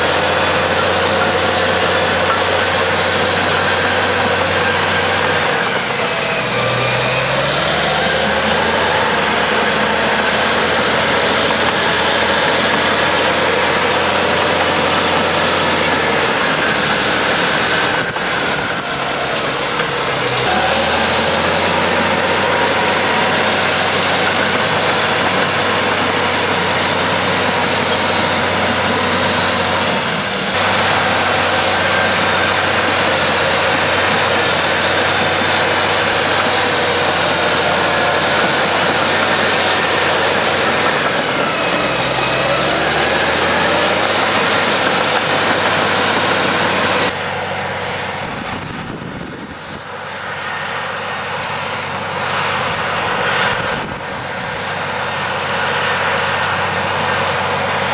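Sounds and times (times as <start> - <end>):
bulldozer diesel engine under load: 0.0 - 57.9.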